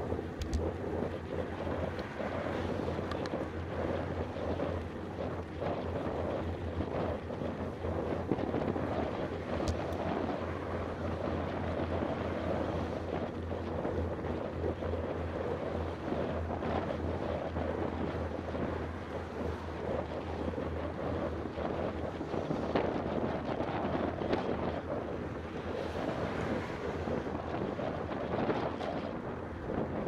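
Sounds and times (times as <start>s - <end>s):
wind rushing over microphone: 0.0s - 30.0s.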